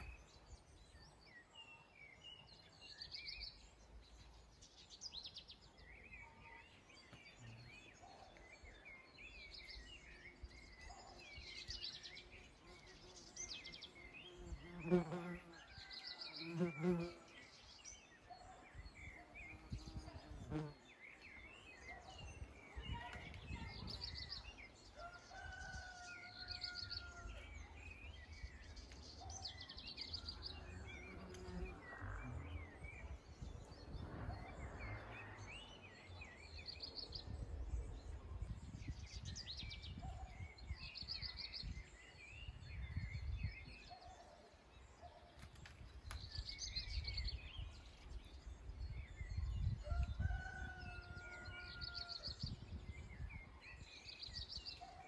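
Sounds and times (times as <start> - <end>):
rooster crowing: 25.0 - 27.4, 49.9 - 52.2.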